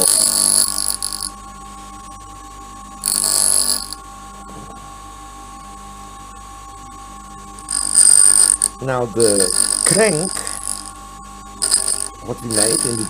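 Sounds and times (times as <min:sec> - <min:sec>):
drill bit grinding on stone: 0:00.0 - 0:01.3, 0:03.0 - 0:04.0, 0:07.6 - 0:10.9, 0:11.6 - 0:13.0
grinder motor whining: 0:00.0 - 0:01.3, 0:03.0 - 0:04.0, 0:07.6 - 0:10.9, 0:11.6 - 0:13.0.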